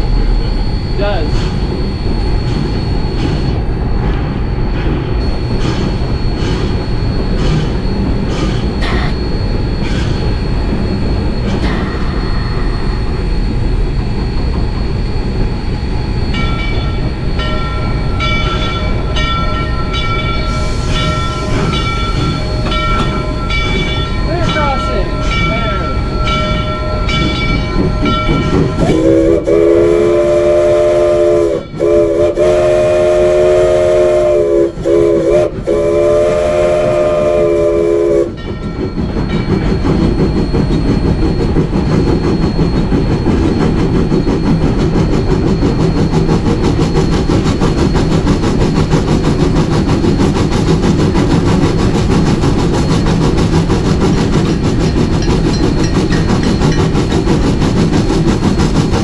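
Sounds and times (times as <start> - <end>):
locomotive exhaust rumble: 0.0 - 59.0
wheels on rail: 0.0 - 59.0
bell ringing: 16.3 - 28.9
steam whistle blasts: 28.8 - 38.4.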